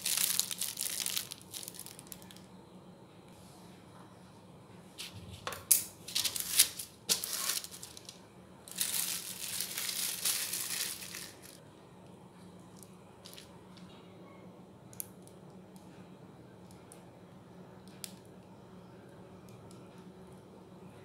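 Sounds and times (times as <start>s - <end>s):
parchment paper crinkling: 0.0s - 2.4s, 6.1s - 11.6s.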